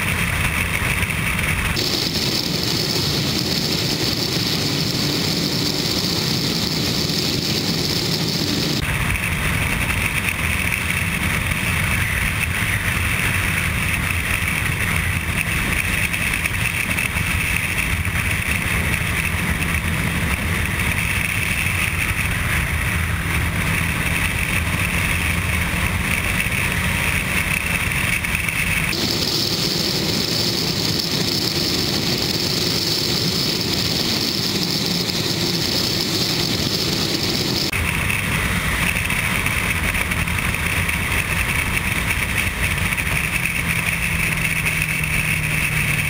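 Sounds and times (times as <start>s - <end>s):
wind rush: 0.0s - 41.3s
motorcycle engine drone: 0.0s - 46.0s.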